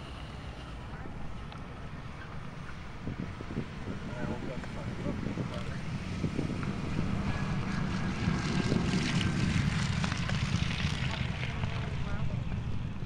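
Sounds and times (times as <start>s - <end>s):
propeller plane engine roaring: 0.0s - 13.0s.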